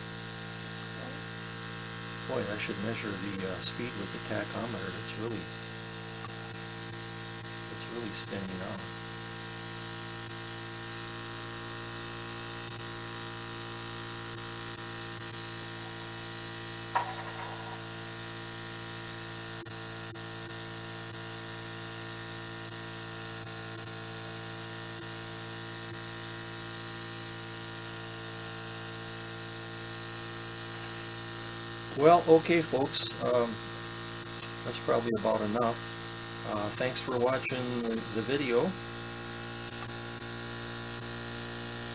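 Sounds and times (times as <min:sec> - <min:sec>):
model steam engine buzzing whir: 0:00.0 - 0:41.9
steam hiss: 0:02.3 - 0:05.4, 0:34.4 - 0:38.7.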